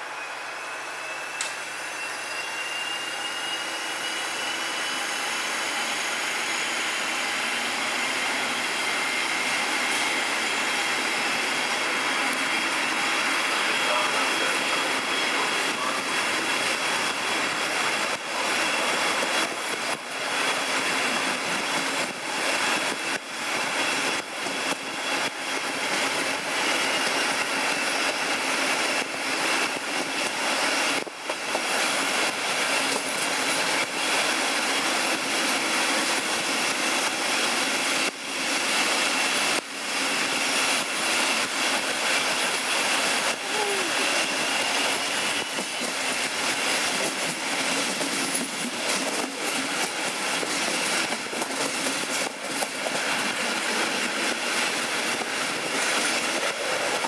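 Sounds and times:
diesel locomotive working hard: 0.0 - 57.0
train wheel and rail noise: 0.0 - 57.0.

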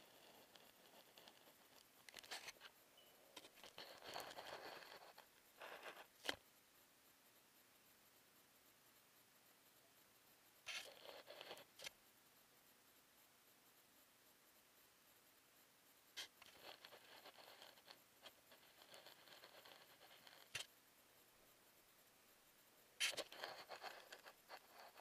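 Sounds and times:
camera scraping on surface: 23.0 - 25.0.

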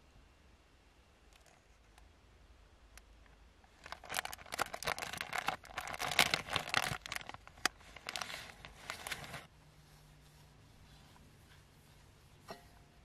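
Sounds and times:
plastic packet crinkling: 3.7 - 9.5.

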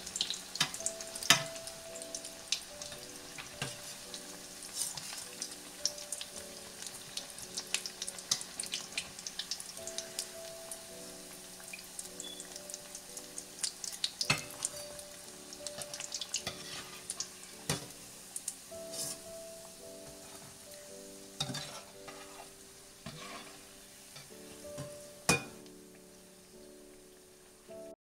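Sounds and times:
oil crackling: 0.0 - 19.5
food deep-frying in oil: 0.0 - 27.7
spoon scraping steel pan: 16.5 - 17.1, 21.4 - 24.3.

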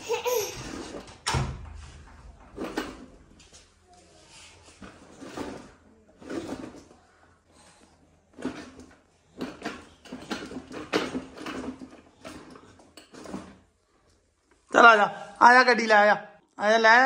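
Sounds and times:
toddler babbling and laughing: 0.0 - 0.8.

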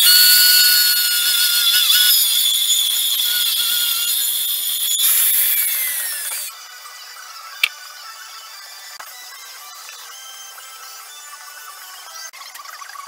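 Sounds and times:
saw cutting wood: 0.0 - 6.5.

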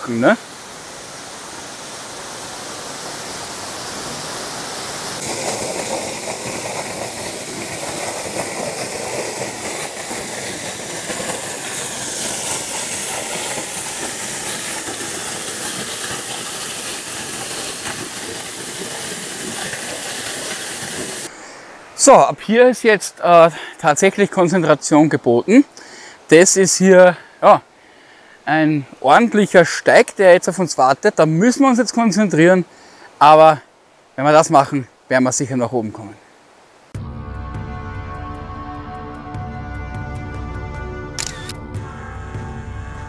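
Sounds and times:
waterfall rushing: 0.0 - 25.2.

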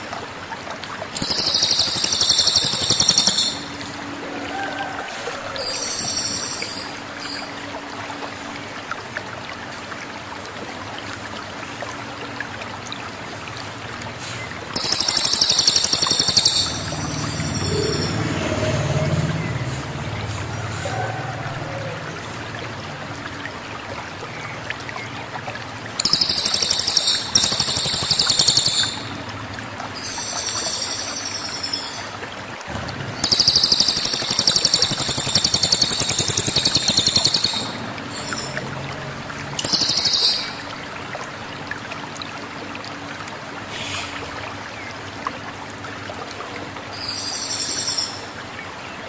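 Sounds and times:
jay buzzy rattling calls: 1.2 - 3.7, 14.8 - 18.1.

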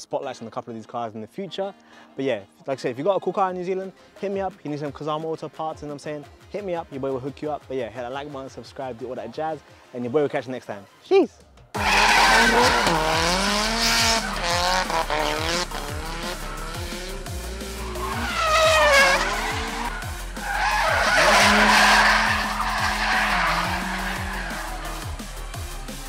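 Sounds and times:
tyres squealing and skidding: 11.8 - 25.4
car engines revving: 11.8 - 26.0
music with kick-drum beat: 13.8 - 20.4, 23.8 - 26.0.

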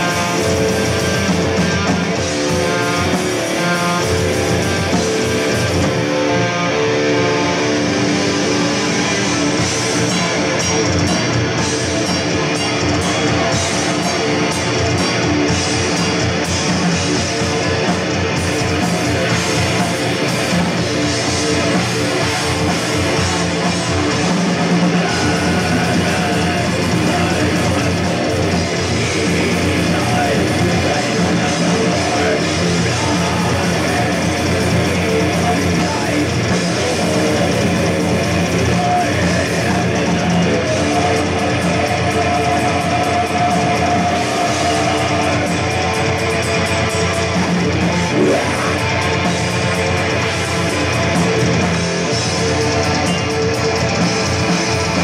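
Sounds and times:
distorted electric guitar: 0.0 - 55.0
drum kit: 0.0 - 55.0.

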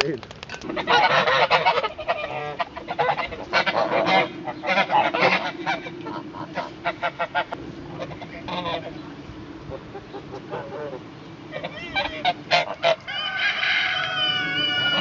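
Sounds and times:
geese honking: 0.6 - 15.0.

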